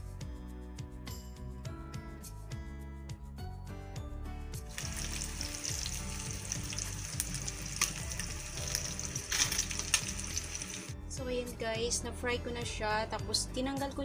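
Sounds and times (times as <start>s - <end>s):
background music: 0.0s - 14.0s
chicken sizzling in hot oil: 4.7s - 10.9s.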